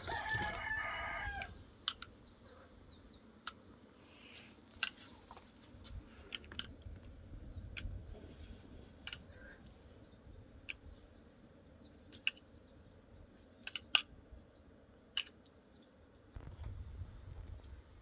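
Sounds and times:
sharp clicks and knocks: 1.8s - 2.2s, 9.0s - 9.3s, 13.6s - 14.1s
faint bird chirps: 7.3s - 16.4s.

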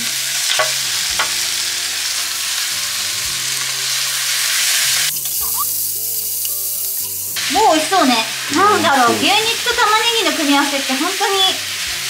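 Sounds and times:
meat and onions sizzling in pan: 0.0s - 12.0s.

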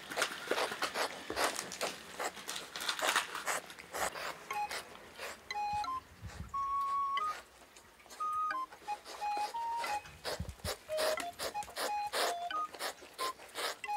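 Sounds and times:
cats licking: 0.0s - 5.5s, 8.9s - 13.9s.

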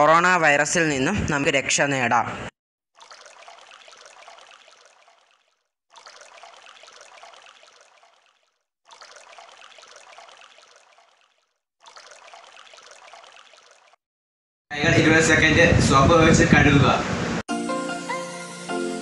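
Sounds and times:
tap water running over hands: 3.0s - 14.0s.

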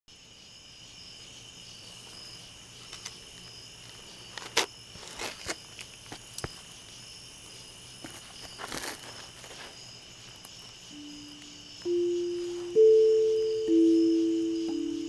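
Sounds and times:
crickets trilling: 0.1s - 15.0s.

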